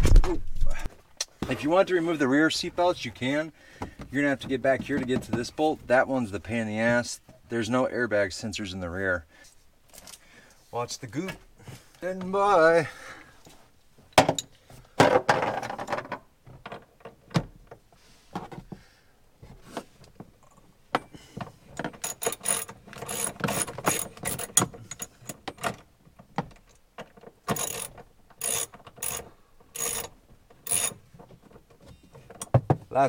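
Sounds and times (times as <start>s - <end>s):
knocks and handling noise: 3.8s - 5.9s, 13.4s - 33.0s
hand ratchet clicking: 21.8s - 25.4s, 27.5s - 31.0s.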